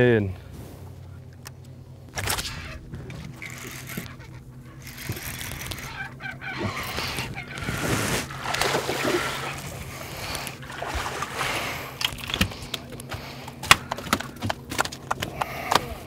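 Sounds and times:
fish flopping on boat deck: 0.7s - 16.0s
fish splashing at water surface: 8.0s - 12.0s.

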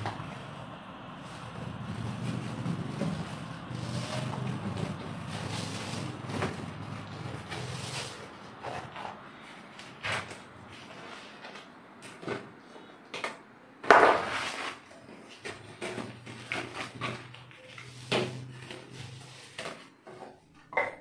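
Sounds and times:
canvas print rustling and crackling: 0.0s - 12.7s.

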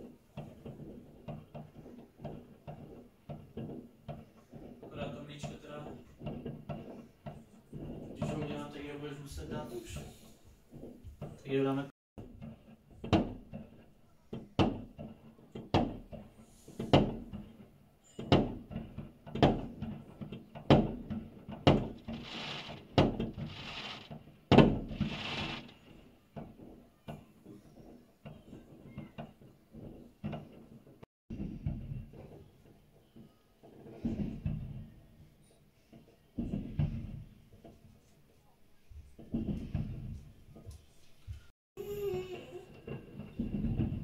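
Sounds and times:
hissing crackling firework bursts: 22.0s - 24.2s, 24.8s - 26.0s.

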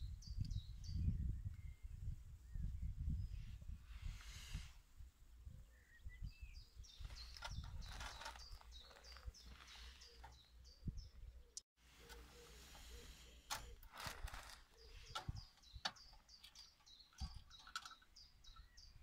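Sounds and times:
wind rumble on microphone: 0.0s - 9.6s, 10.3s - 11.4s, 13.9s - 16.2s
small bird chirping: 5.6s - 19.0s
knocks and rustles of handling: 7.1s - 10.5s.

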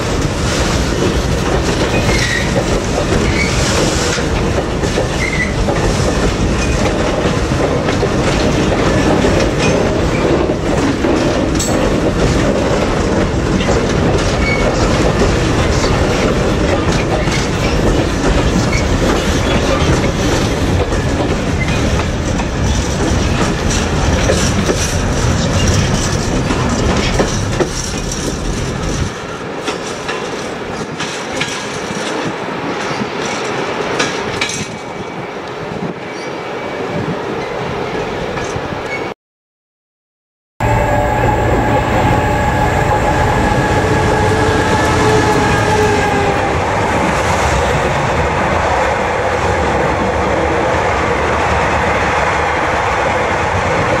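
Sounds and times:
wagon wheels rumbling over rail joints: 0.0s - 34.8s.

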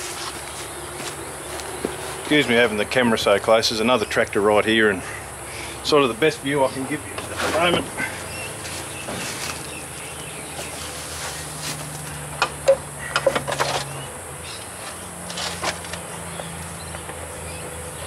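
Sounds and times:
clicks and knocks of hands working: 11.8s - 14.0s.

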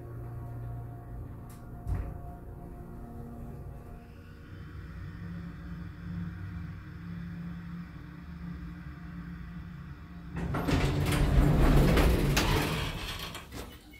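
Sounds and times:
elevator car humming: 0.0s - 13.6s
sliding doors opening with rattle: 10.1s - 13.9s.

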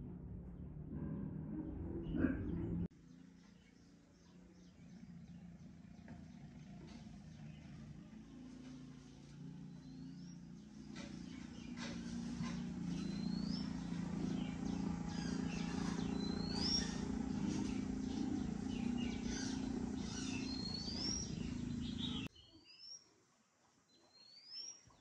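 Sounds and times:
steady low hum: 0.0s - 22.3s
bird whistling: 18.7s - 22.3s.

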